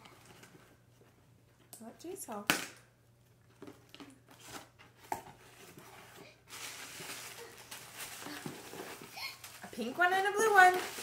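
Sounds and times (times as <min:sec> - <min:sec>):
tissue paper rustling: 0:05.4 - 0:11.0.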